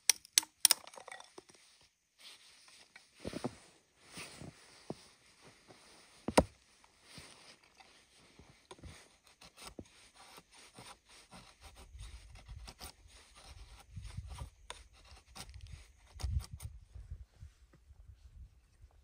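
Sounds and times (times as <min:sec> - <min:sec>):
blade scraping wood: 0:07.5 - 0:16.6.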